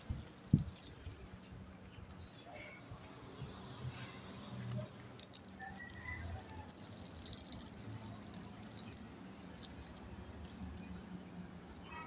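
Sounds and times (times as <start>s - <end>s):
toy wheels rolling on concrete: 0.0s - 1.4s, 4.4s - 11.1s.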